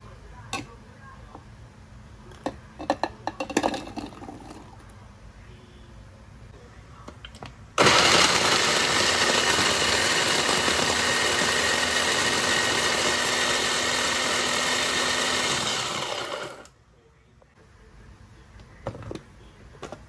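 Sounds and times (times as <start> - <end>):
electric food chopper running: 7.8 - 16.7.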